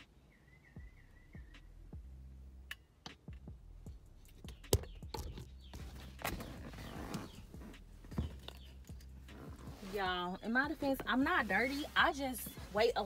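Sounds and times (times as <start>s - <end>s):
rustling: 5.6s - 13.0s.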